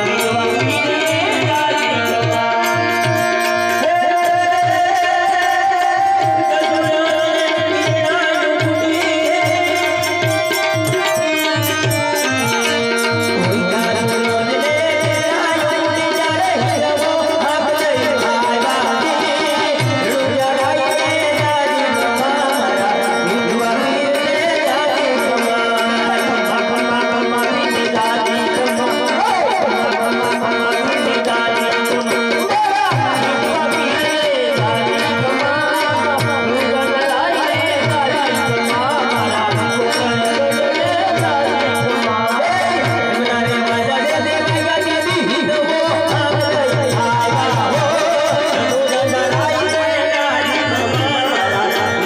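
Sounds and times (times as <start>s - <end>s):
electric keyboard melody: 0.0s - 52.0s
person singing: 0.0s - 52.0s.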